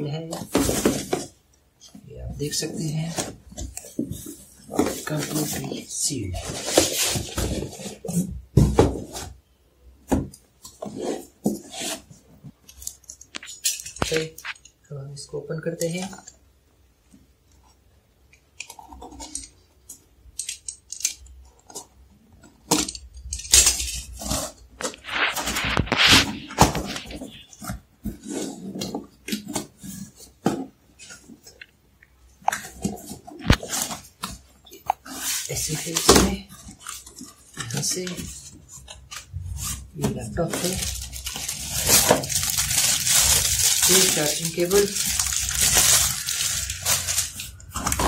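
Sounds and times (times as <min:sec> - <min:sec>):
cardboard rubbing and scraping: 0:24.2 - 0:30.7.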